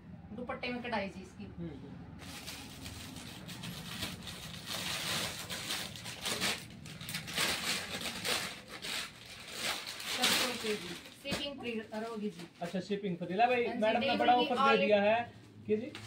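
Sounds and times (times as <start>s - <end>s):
cloth and plastic packaging rustling: 2.2s - 15.0s.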